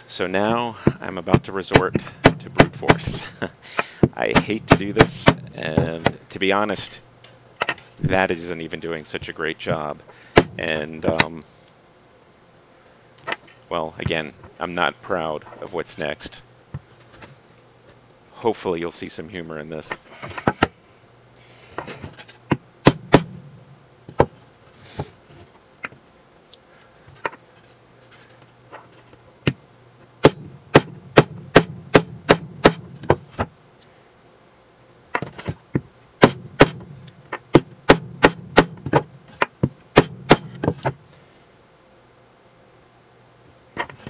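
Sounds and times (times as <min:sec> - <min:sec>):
hand pounding on wooden board: 0:22.5 - 0:23.4, 0:30.2 - 0:33.2, 0:36.2 - 0:36.9, 0:37.5 - 0:41.0.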